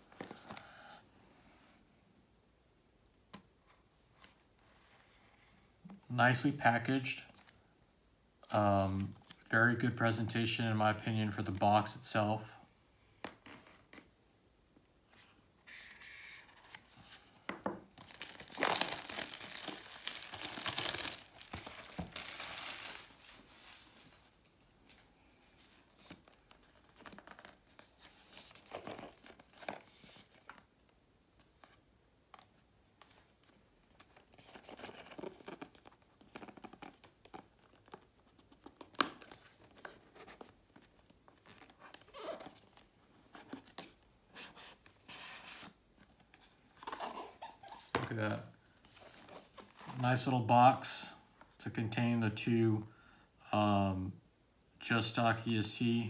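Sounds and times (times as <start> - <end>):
cardboard rustling and sliding: 48.8 - 50.0.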